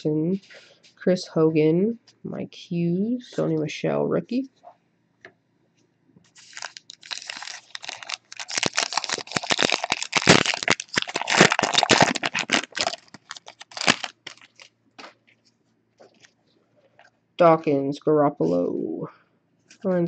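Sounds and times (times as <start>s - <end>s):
plastic wrapper tearing and crinkling: 6.3s - 15.2s.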